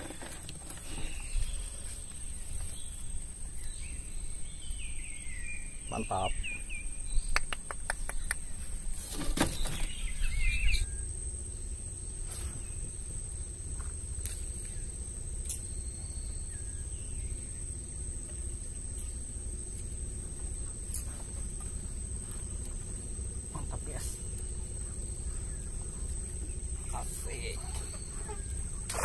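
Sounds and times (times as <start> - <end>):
birds chirping: 0.0 - 29.0
outdoor background noise: 0.0 - 29.0
rustle: 0.0 - 29.0
constant thin high tone: 9.6 - 29.0.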